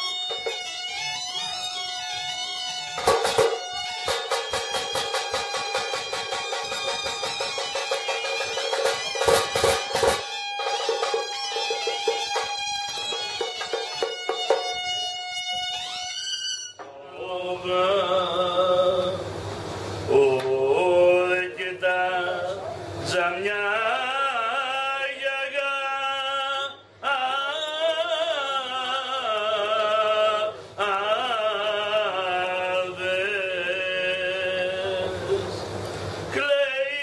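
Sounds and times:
instrumental music: 0.0 - 17.3
man singing unaccompanied: 16.8 - 19.3, 20.1 - 35.7, 36.3 - 37.0.

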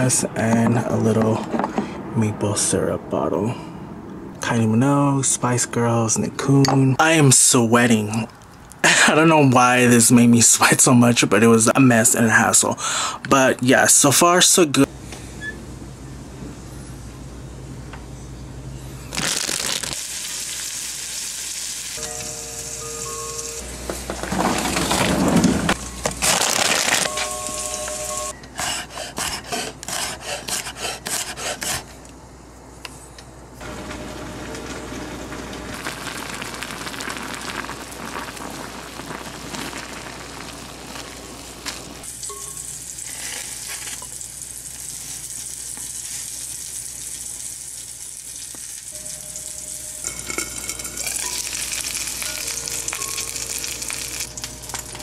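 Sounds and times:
food sizzling in a pan: 19.2 - 23.6, 35.6 - 54.9.

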